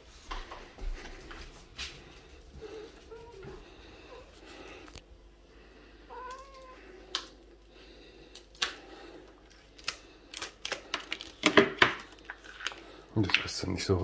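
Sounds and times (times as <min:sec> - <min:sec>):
cat meowing: 0:06.1 - 0:06.9.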